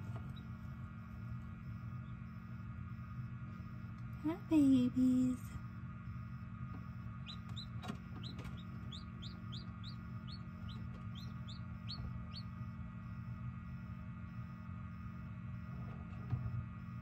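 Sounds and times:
steady low hum: 0.0 - 17.0
chicks peeping: 7.2 - 12.6.

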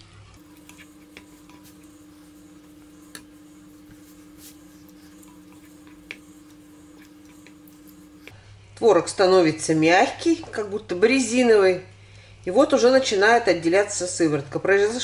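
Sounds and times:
spatula stirring with squishing: 0.0 - 8.4
faint steady hum: 0.0 - 8.9
spatula tapping pot: 0.4 - 8.4.

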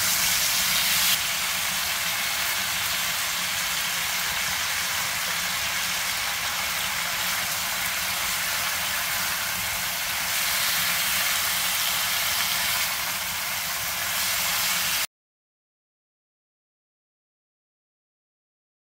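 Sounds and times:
food sizzling in a frying pan: 0.0 - 15.1.

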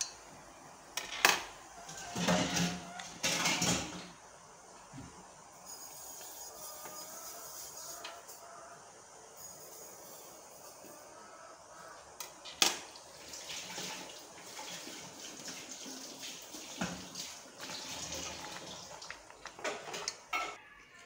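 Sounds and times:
water boiling and sloshing in pot: 1.8 - 5.6, 12.2 - 20.6.

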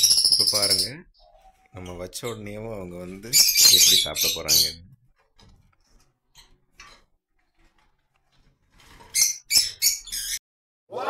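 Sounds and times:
sharp high bird chirps: 0.0 - 1.3, 3.3 - 4.8, 9.2 - 10.4
lovebirds chirping: 0.0 - 4.9, 9.1 - 10.4.

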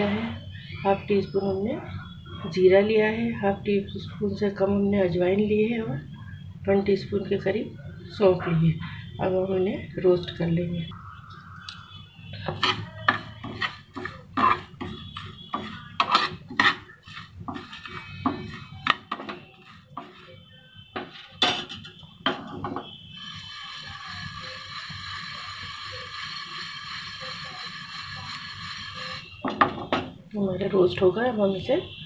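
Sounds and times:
spoon clinking and scraping pan: 12.4 - 20.4.

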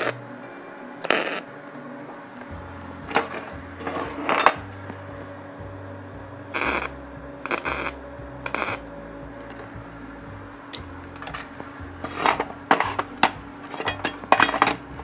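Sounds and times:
arc welder crackling bursts: 0.0 - 0.2, 1.0 - 1.5, 6.5 - 8.9
metal clinks: 3.1 - 4.7, 10.8 - 15.0.

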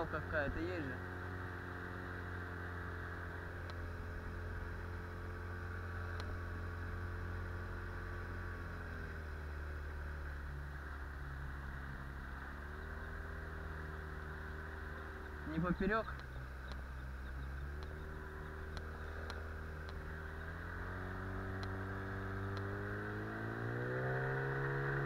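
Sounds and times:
outboard motor running: 0.0 - 22.6.

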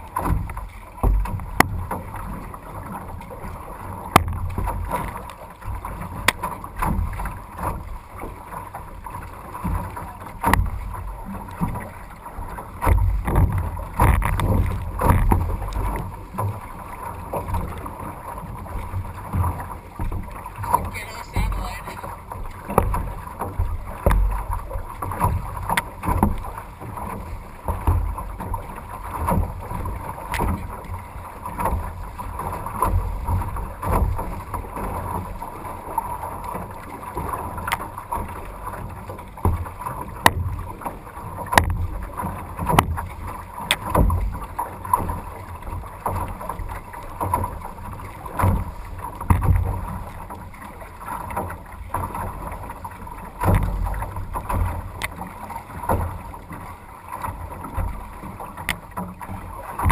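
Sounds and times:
water slapping against hull: 0.0 - 59.9.

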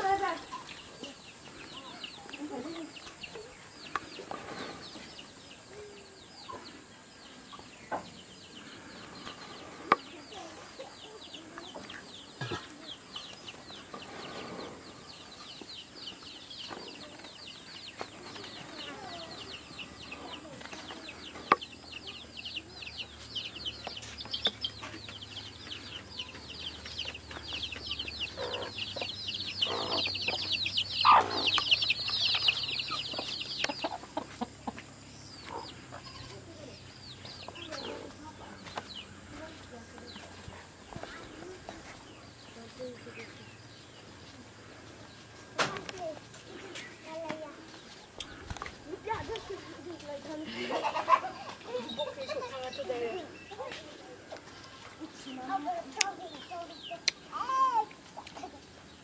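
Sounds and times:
chickens clucking: 0.0 - 59.0
high fast chirping chorus: 21.1 - 38.3.

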